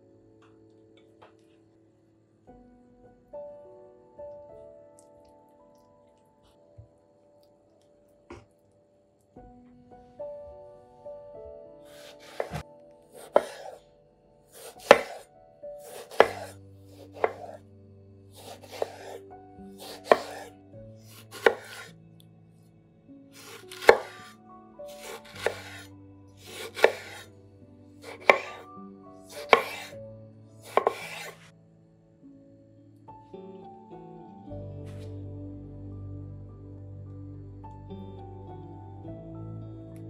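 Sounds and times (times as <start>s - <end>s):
knife slicing tomato on board: 11.9s - 12.6s, 13.2s - 13.8s, 14.6s - 15.2s, 15.8s - 17.6s, 18.4s - 19.2s, 19.8s - 20.5s, 21.1s - 21.9s, 23.4s - 24.3s, 24.9s - 27.3s, 28.0s - 28.6s, 29.3s - 30.0s, 30.6s - 31.5s.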